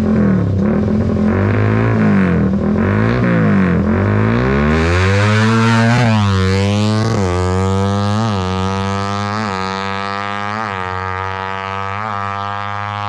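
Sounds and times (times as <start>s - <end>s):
motorcycle engine accelerating through gears: 0.0s - 13.0s.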